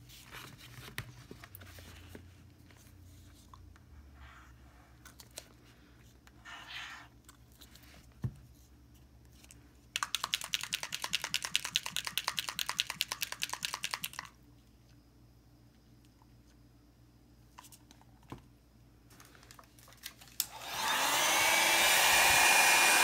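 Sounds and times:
mixing ball rattling in bottle: 10.0s - 14.4s.

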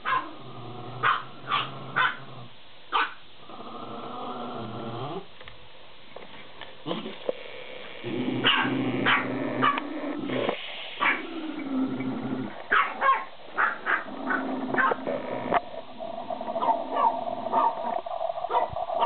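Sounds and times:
small dog yapping: 0.0s - 0.3s, 2.9s - 3.2s, 8.4s - 9.8s, 12.7s - 15.0s
small dog growling: 0.0s - 2.5s, 3.4s - 5.3s, 6.8s - 19.0s.

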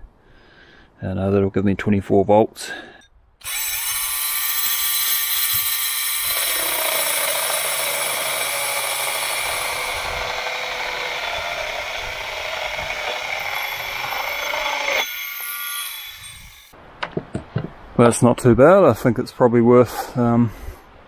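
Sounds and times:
chainsaw chain rasping through wood: 3.4s - 16.7s.

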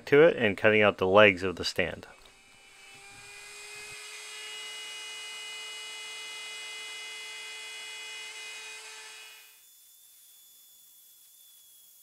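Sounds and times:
end mill cutting plywood: 2.2s - 9.5s
cnc router spindle whine: 2.3s - 12.0s.

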